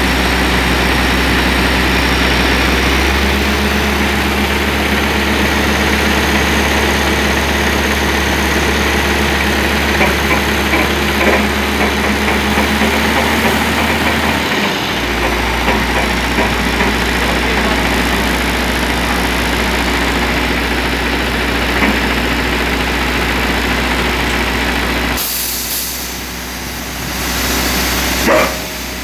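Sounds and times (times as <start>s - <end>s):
heavy truck engine droning: 0.0s - 29.0s.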